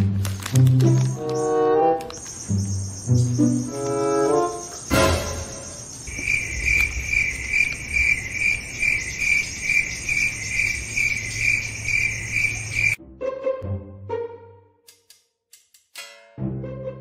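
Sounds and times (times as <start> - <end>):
crickets chirping: 2.1 - 13.0.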